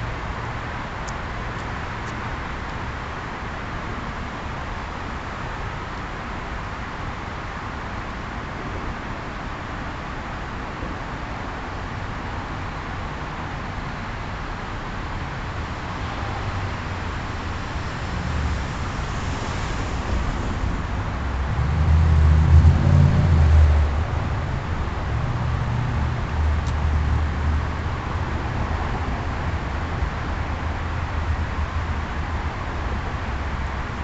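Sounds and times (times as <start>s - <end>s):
traffic rumble: 0.0s - 34.0s
car driving past: 15.9s - 27.6s.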